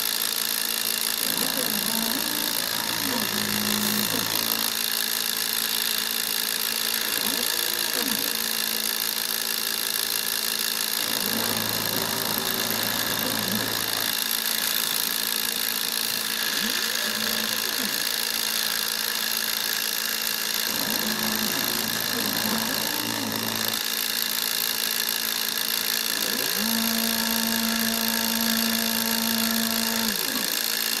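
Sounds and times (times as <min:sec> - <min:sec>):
spindle motor whine: 0:00.6 - 0:31.0
axis motors humming: 0:00.9 - 0:31.0.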